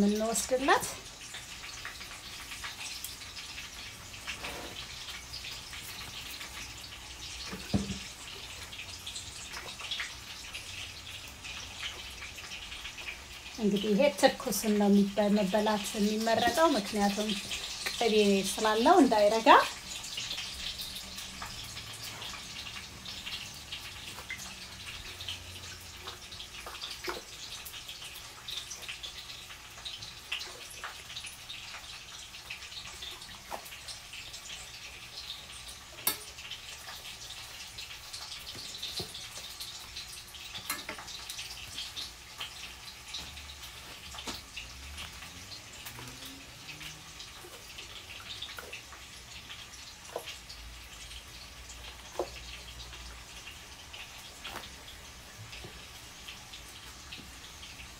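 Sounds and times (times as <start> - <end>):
broth dripping and splashing: 0.0 - 13.8, 15.8 - 57.9
fine crackle: 53.4 - 55.0.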